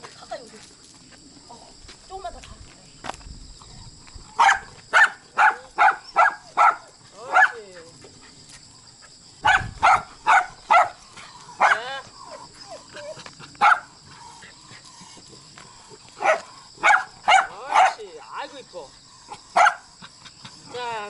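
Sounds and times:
dogs barking: 4.4 - 7.8, 9.4 - 15.1, 15.9 - 18.1, 19.2 - 20.8.

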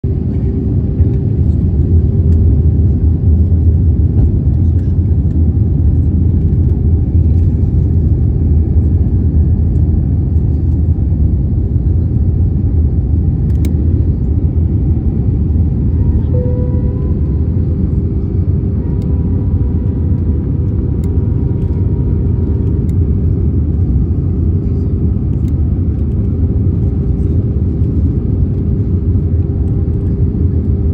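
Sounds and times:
engine and air rumble in cabin: 0.0 - 30.9
faint steady tones: 15.8 - 20.3.

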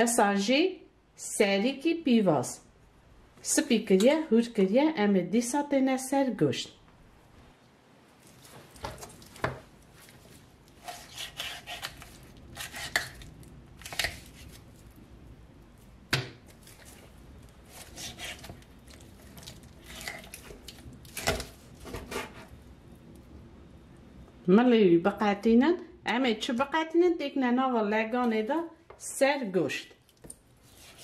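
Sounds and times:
knife cutting chicken on board: 10.8 - 13.2, 17.7 - 18.6.

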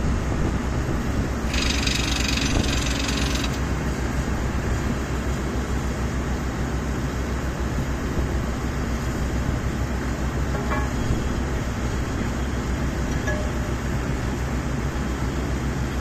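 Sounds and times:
drill rig running: 1.4 - 3.8
air hammer pulsing: 1.5 - 3.6.

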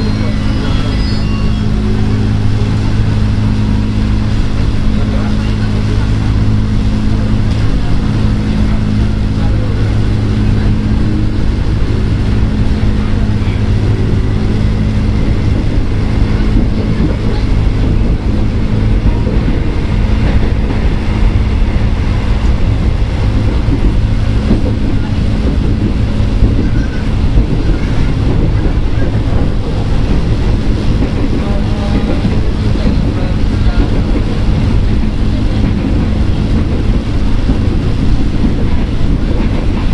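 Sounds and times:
train rumble: 0.0 - 39.9.

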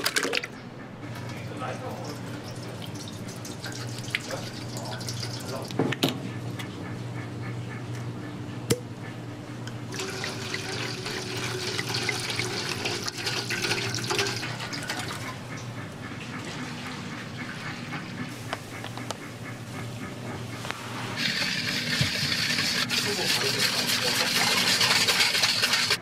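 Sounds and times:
liquid pouring and fizzing: 1.7 - 5.8, 9.9 - 15.4, 21.2 - 26.0.

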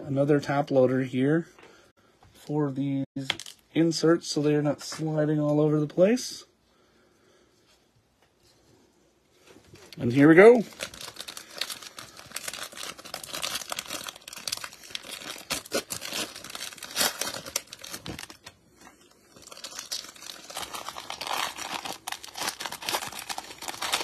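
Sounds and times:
plastic wrapping tearing and crinkling: 9.9 - 24.0.

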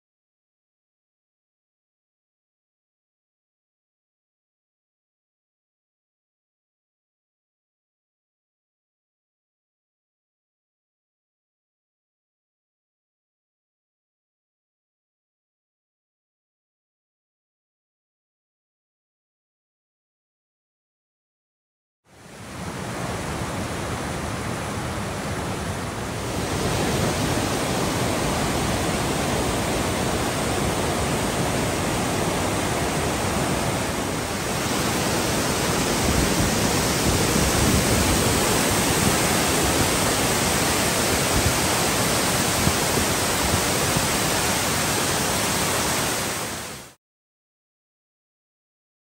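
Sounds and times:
waterfall rushing: 22.2 - 47.0.

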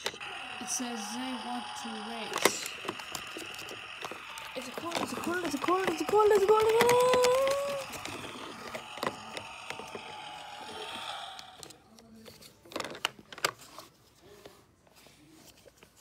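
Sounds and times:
toy speaker electronic tones: 0.1 - 11.7
plastic toy knocks and clicks: 2.2 - 11.7, 12.6 - 13.6.

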